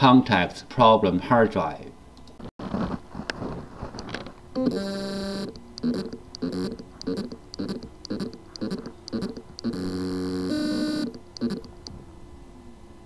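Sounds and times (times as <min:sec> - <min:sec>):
hard drive motor buzzing and pulsing: 0:04.6 - 0:12.0.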